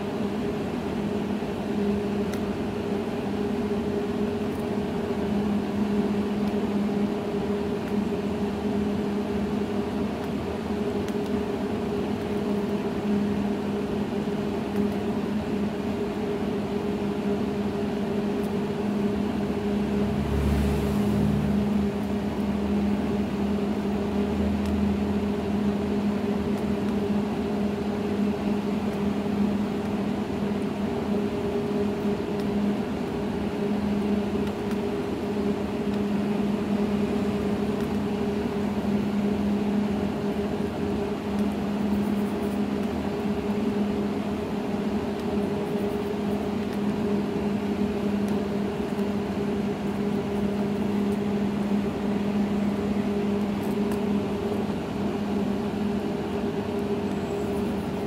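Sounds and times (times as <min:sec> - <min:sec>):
steady electrical hum: 0:00.0 - 0:58.0.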